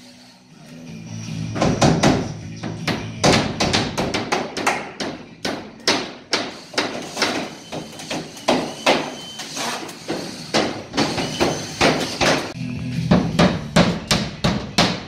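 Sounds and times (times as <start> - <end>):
hammer nailing drywall: 2.9 - 9.1.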